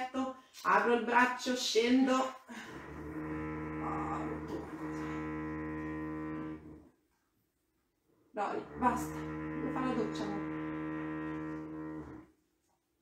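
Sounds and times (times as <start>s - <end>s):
small engine droning: 2.7s - 6.8s, 8.6s - 12.2s.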